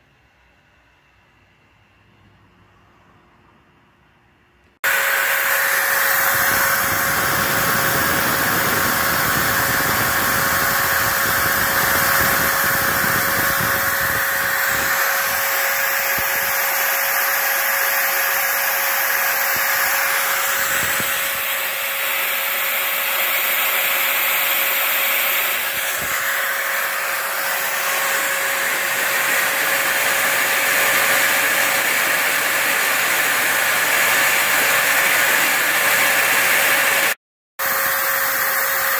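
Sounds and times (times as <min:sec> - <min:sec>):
router whining: 0:04.8 - 0:38.9.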